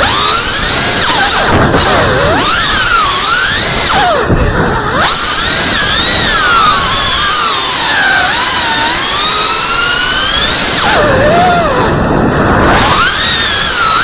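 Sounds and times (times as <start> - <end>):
drone motors whining: 0.0 - 14.0.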